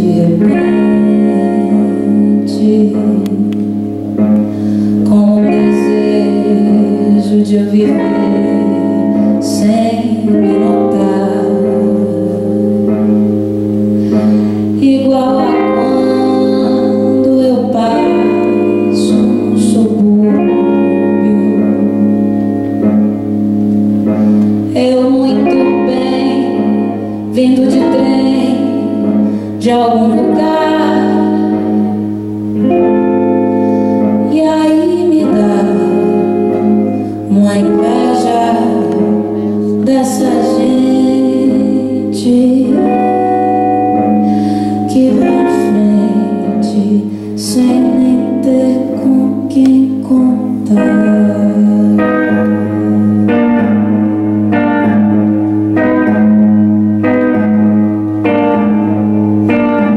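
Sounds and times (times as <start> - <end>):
guitar accompaniment: 0.0 - 59.9
woman singing slow song: 0.0 - 59.9.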